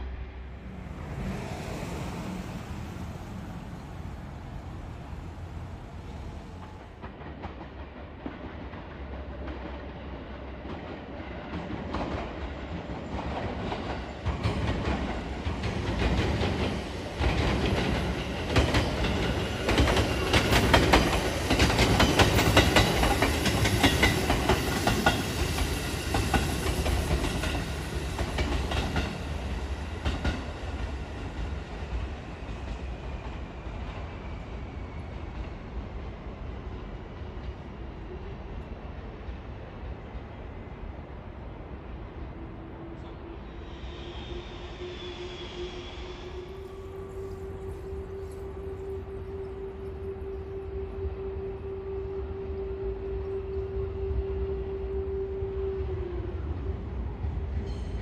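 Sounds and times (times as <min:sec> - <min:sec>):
train wheels clattering: 0:06.5 - 0:34.1.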